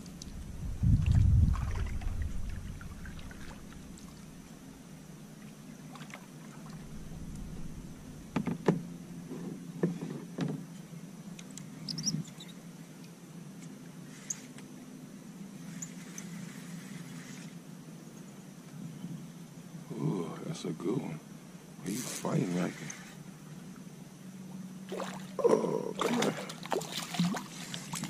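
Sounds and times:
paddle pulling through water: 0.0s - 4.5s, 5.4s - 10.2s, 24.8s - 28.0s
paddle knocking against canoe hull: 8.3s - 10.6s.

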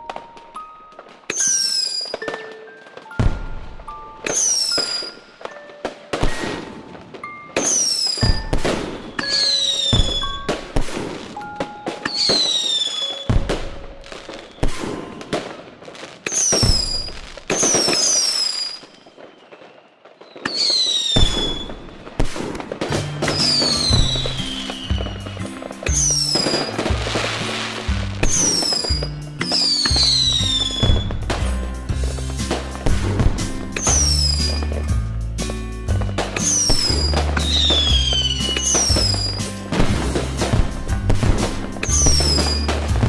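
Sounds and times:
firework whistles and bangs: 0.0s - 43.0s
low bass notes: 31.0s - 33.8s, 34.8s - 36.4s, 39.8s - 43.0s.

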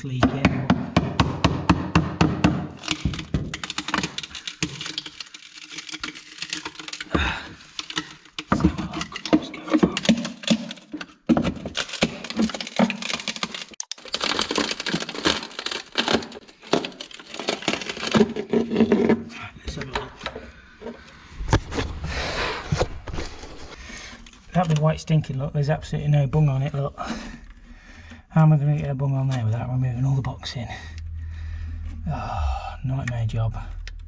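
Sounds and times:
wood cracking and splintering: 0.1s - 20.4s, 22.8s - 28.2s.

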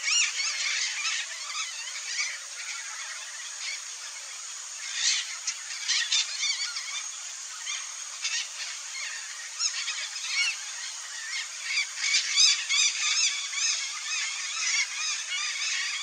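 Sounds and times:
macaw shrill screeches: 0.0s - 3.0s.

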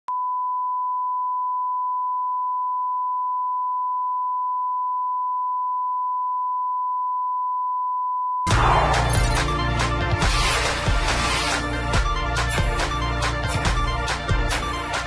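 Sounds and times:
loud music with heavy bass: 8.5s - 15.0s.

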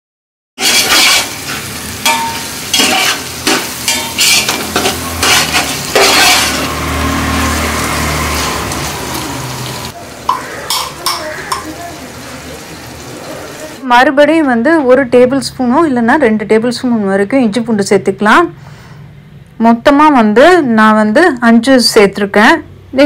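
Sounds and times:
spoon knocking and scraping pot: 0.6s - 1.4s, 2.0s - 6.7s, 10.3s - 11.7s
food sizzling in oil: 0.6s - 13.8s.

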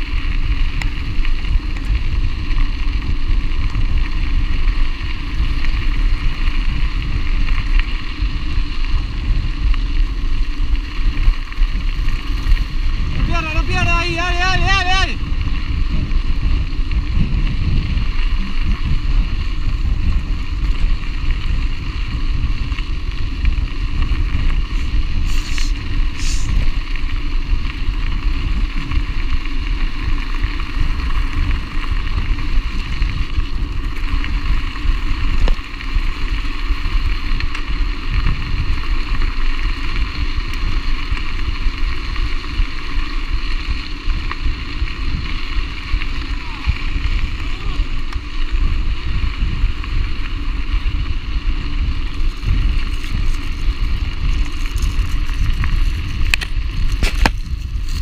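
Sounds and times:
bike rolling over gravel: 0.0s - 58.0s
wind noise on microphone: 0.0s - 58.0s
brief high hisses: 25.3s - 26.6s.

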